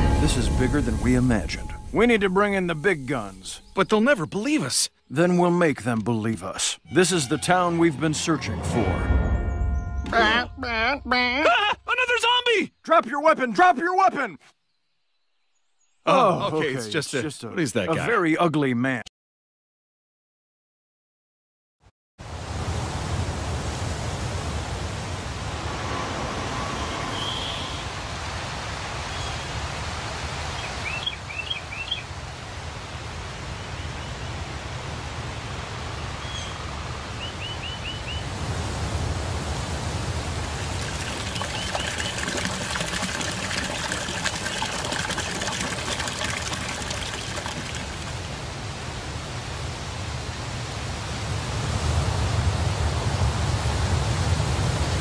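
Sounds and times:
low rumble: 0.0s - 3.4s
bird chirps: 0.0s - 5.4s, 26.6s - 27.9s, 30.6s - 32.0s, 37.2s - 38.2s, 41.0s - 42.2s.

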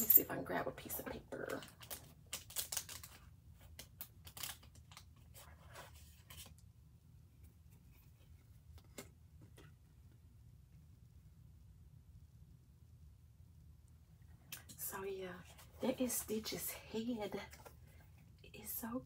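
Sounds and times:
low steady hum: 0.0s - 19.0s
paper rustling and clicks: 1.7s - 5.3s.

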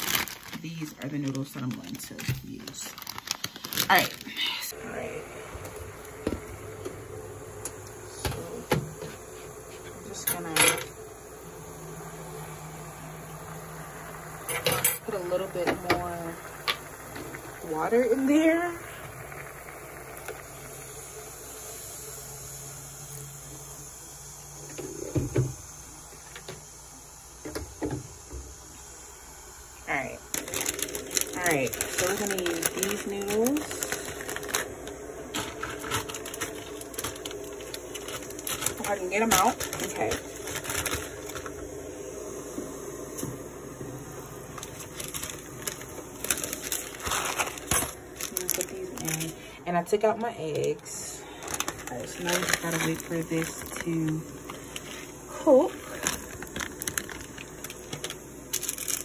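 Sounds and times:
fan-like machine hum: 0.0s - 59.0s.

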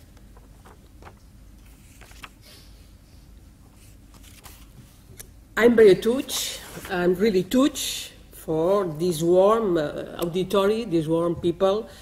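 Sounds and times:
low room hum: 0.0s - 12.0s
paper sheets rustling: 0.3s - 2.6s, 3.8s - 4.8s, 6.2s - 7.0s.

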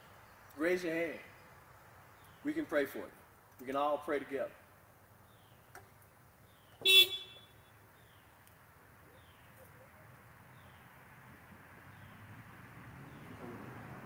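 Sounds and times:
car horn toot: 6.8s - 7.7s.

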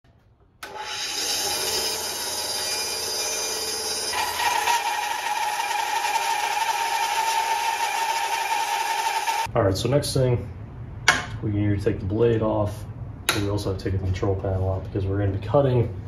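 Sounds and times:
bandsaw cutting wood: 0.6s - 9.5s.

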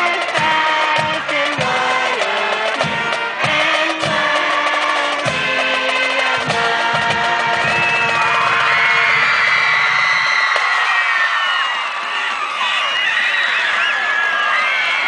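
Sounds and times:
crowd singing along: 0.0s - 9.4s
marching band brass chords: 0.0s - 10.8s.

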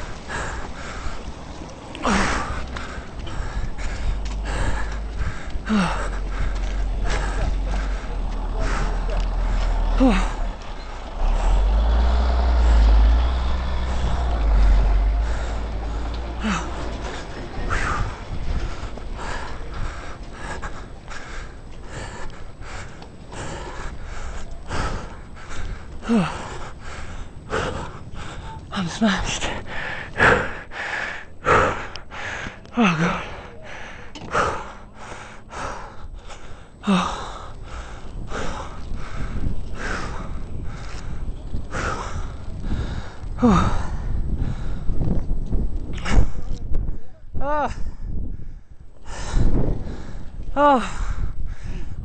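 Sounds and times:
man panting heavily: 0.0s - 52.0s
man gasping for breath: 2.0s - 10.5s, 15.2s - 45.0s, 46.0s - 52.0s
man groaning: 9.9s - 10.5s, 47.4s - 47.8s.

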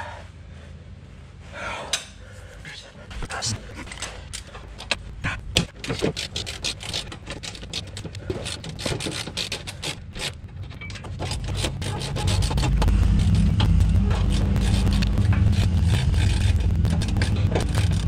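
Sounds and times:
low steady rumble: 0.0s - 18.0s
metal tools clicking and scraping: 3.8s - 12.8s.

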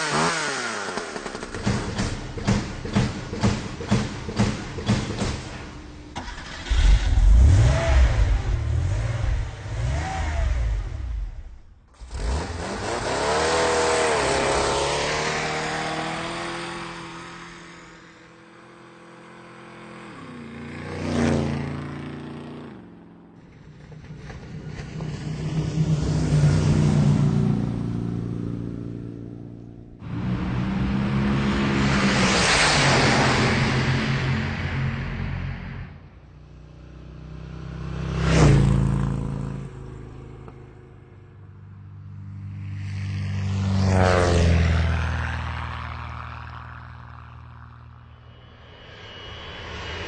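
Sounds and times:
car engines revving and passing: 0.0s - 50.0s.

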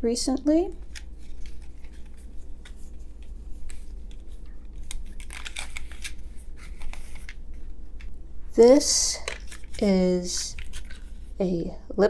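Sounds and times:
papery rustling: 0.8s - 7.7s, 10.5s - 11.4s.

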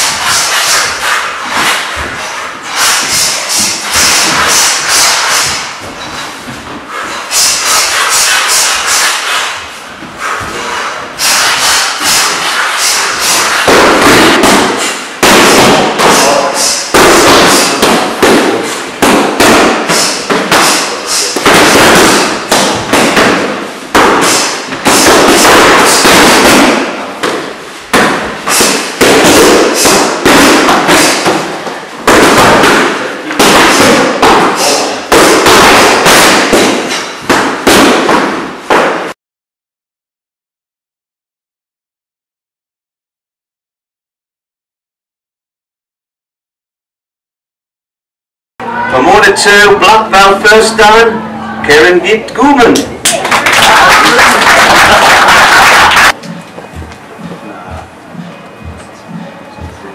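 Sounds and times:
gloves punching focus pads: 11.2s - 39.1s.

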